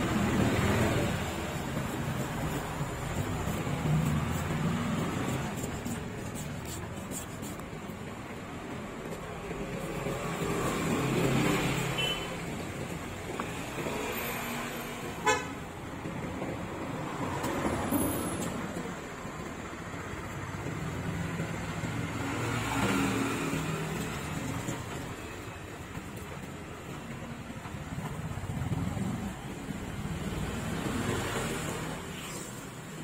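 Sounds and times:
road traffic passing: 0.0 - 33.0
car horn toot: 12.0 - 12.4, 15.2 - 15.5.

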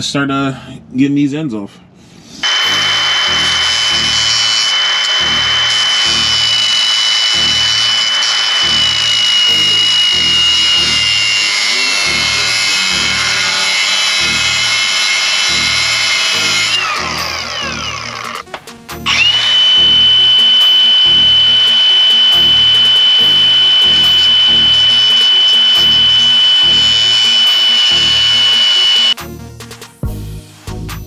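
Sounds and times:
cut-off tool whining: 2.4 - 29.2
background music with bass beat: 29.2 - 31.0.

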